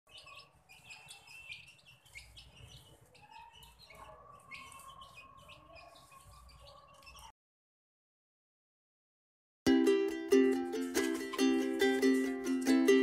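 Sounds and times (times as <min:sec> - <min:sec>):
chicks peeping: 0:00.1 - 0:07.3.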